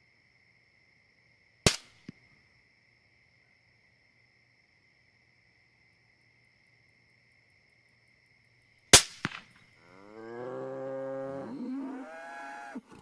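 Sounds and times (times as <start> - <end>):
rifle shot: 9.0 - 9.5
bull bellowing: 9.8 - 12.9.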